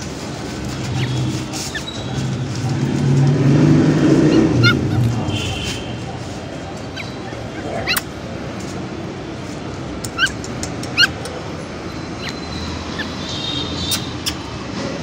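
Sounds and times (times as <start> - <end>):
steady background noise: 0.0 - 15.0
puppies yelping and whining: 0.6 - 3.0, 4.2 - 5.3, 6.0 - 8.4, 10.1 - 11.3, 11.9 - 13.3.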